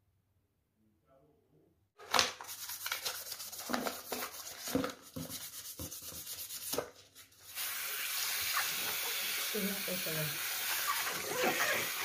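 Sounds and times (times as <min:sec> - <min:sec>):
toothbrush scrubbing plastic: 0:02.4 - 0:07.6.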